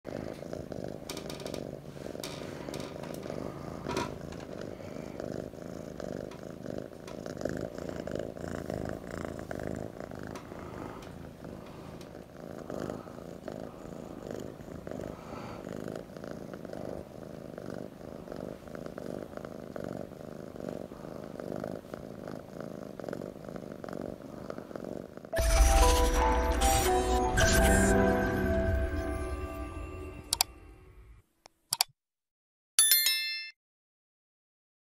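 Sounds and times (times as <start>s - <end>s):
kitten purring: 0.0s - 26.2s
soft clicks: 30.3s - 30.5s.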